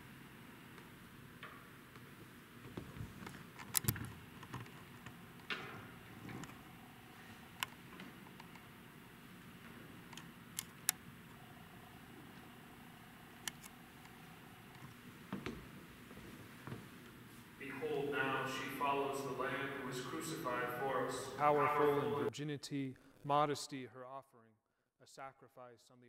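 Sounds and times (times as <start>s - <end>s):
sharp clicks: 13.4s - 14.8s
footsteps: 13.8s - 17.6s
soft shuffling: 13.8s - 17.7s.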